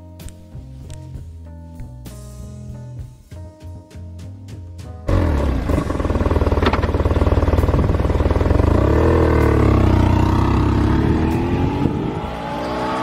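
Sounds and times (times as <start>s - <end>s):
motorcycle engine pulling away: 5.0s - 13.0s.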